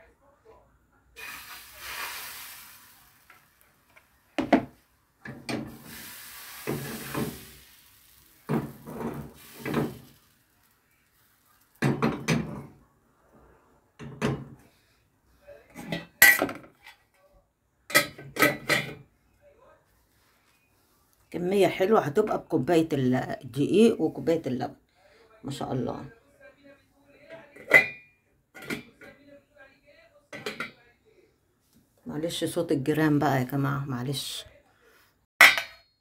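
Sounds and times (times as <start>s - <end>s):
batter sizzling in frying pan: 1.2s - 4.6s, 5.4s - 12.5s
pan and utensils clattering: 4.4s - 10.6s, 11.7s - 12.8s, 15.7s - 17.1s, 17.9s - 19.0s.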